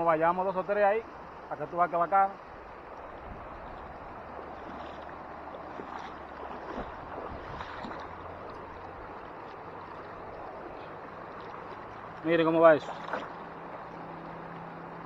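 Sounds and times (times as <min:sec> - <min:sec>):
river water running over rocks: 0:00.0 - 0:15.0
light splashes in water: 0:03.0 - 0:14.6.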